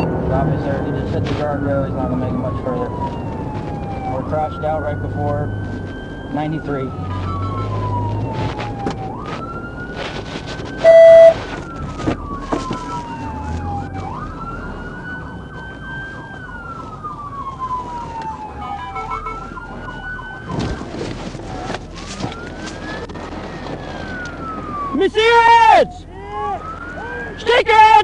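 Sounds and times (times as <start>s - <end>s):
police sirens wailing: 0.0s - 28.0s
siren warble: 1.9s - 20.9s
loud steady tone: 10.8s - 11.4s.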